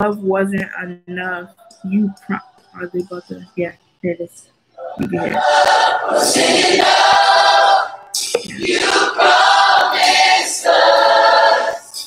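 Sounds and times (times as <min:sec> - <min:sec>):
group singing worship song: 0:04.7 - 0:12.0.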